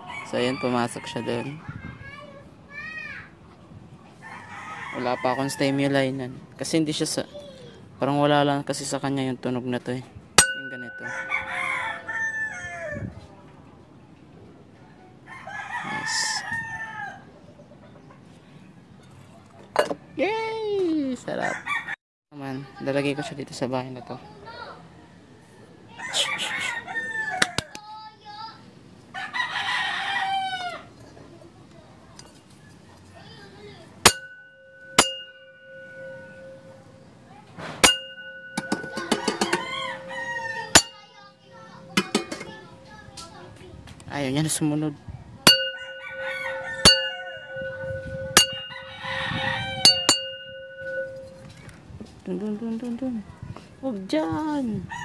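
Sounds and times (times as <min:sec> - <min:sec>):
rooster crowing: 0:00.0 - 0:01.6, 0:04.2 - 0:05.9, 0:10.9 - 0:13.3, 0:15.3 - 0:17.4, 0:21.3 - 0:22.0, 0:24.9 - 0:27.8, 0:29.1 - 0:31.0, 0:34.3 - 0:37.0, 0:37.9 - 0:42.7, 0:45.5 - 0:51.4
resonant chime ringing: 0:10.4 - 0:12.5, 0:34.0 - 0:37.1, 0:37.8 - 0:43.1, 0:45.5 - 0:51.6.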